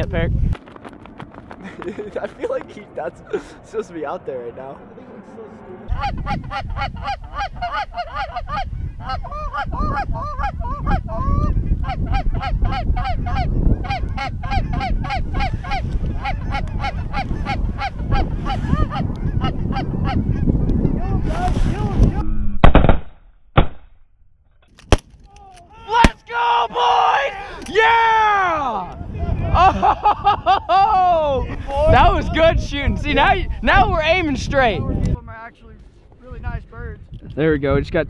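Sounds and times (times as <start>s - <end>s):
wind rumble on microphone: 0.0s - 3.9s, 4.6s - 22.7s, 27.0s - 38.0s
goose honking: 5.9s - 21.0s.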